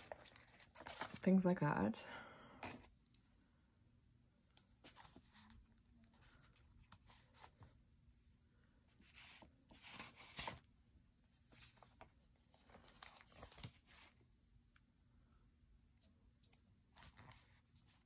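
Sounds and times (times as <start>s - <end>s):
paper sticker sheets rustling: 0.0s - 1.3s.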